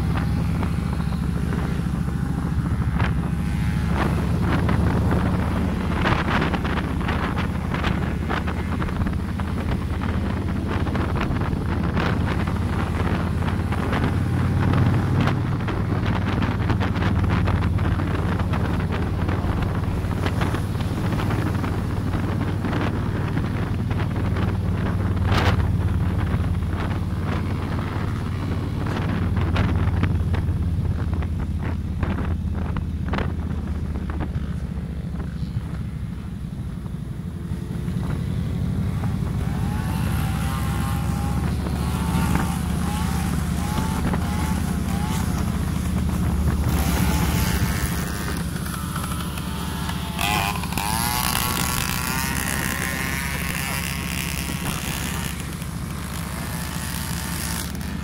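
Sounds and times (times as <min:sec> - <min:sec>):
motorcycle engine droning: 0:00.0 - 0:58.0
wind buffeting microphone: 0:00.0 - 0:58.0.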